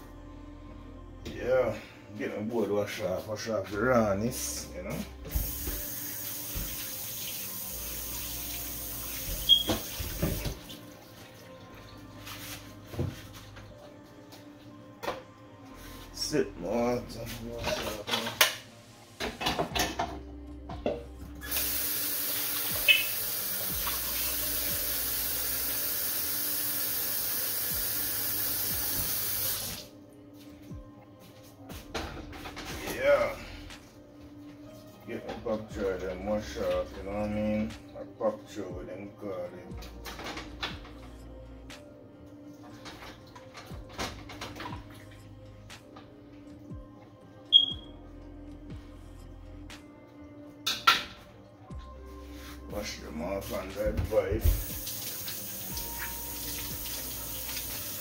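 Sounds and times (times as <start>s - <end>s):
tap running into sink: 5.3s - 6.9s, 9.2s - 10.7s, 54.4s - 57.8s
tap water running into sink: 5.3s - 10.8s, 21.4s - 29.9s, 54.4s - 58.0s.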